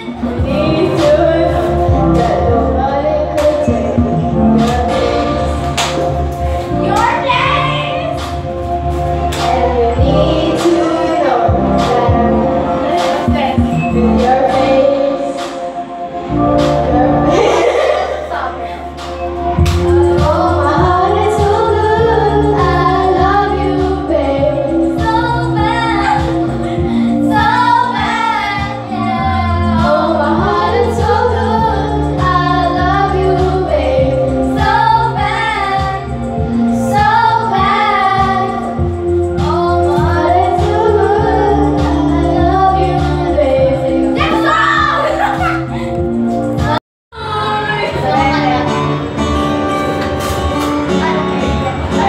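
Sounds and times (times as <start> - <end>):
woman singing into microphone: 0.0 - 5.7, 9.2 - 15.8, 19.8 - 48.9
backing track with bass line: 0.0 - 52.0.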